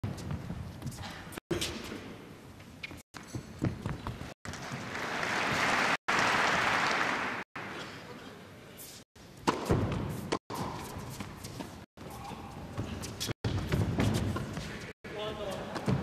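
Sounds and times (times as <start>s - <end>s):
crowd applauding: 4.5s - 7.5s
tennis ball bouncing and struck: 9.4s - 11.3s.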